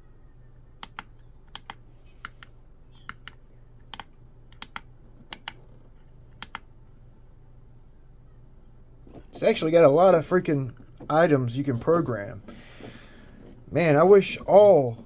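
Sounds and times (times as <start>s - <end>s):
low steady hum: 0.0s - 15.0s
push buttons clicking: 0.8s - 5.7s, 6.3s - 6.6s.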